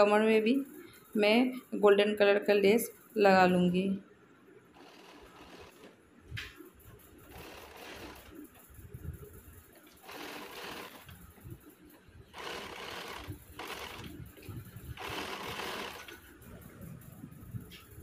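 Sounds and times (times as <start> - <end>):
sewing machine stitching: 4.8 - 6.0, 7.2 - 8.6, 9.9 - 11.2, 12.3 - 16.3.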